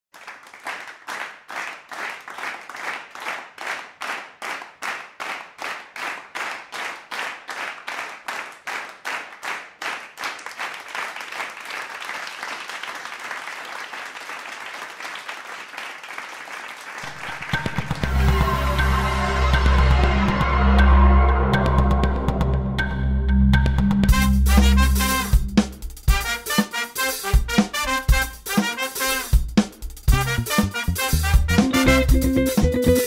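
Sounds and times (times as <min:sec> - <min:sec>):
crowd clapping: 0:00.1 - 0:19.0.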